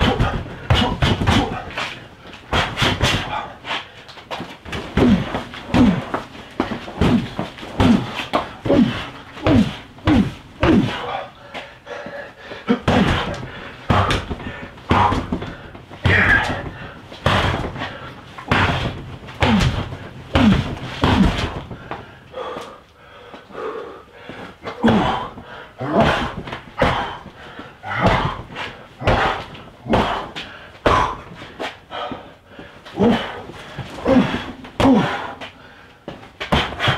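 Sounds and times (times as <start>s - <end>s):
person grunting: 0.0s - 1.8s, 5.0s - 6.2s, 7.0s - 11.4s, 12.6s - 15.4s, 16.0s - 17.7s, 18.5s - 21.6s, 24.7s - 27.2s, 27.8s - 31.3s, 33.0s - 35.4s
strikes thudding into dummy: 0.0s - 1.9s, 2.5s - 3.5s, 4.6s - 11.1s, 12.8s - 21.8s, 25.9s - 27.3s, 27.9s - 31.2s, 36.4s - 36.9s.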